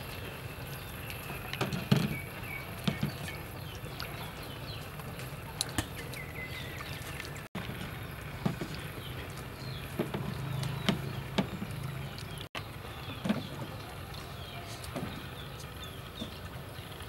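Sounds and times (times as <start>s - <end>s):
water splashing in steel bowl: 0.0s - 12.5s
birds chirping faintly: 0.0s - 17.0s.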